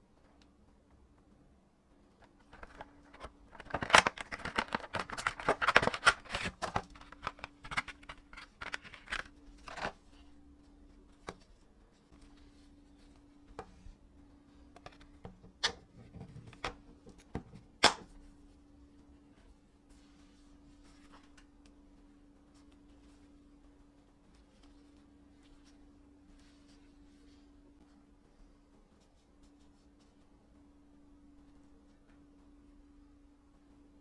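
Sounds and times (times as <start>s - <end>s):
plastic packaging crinkling: 2.4s - 10.0s.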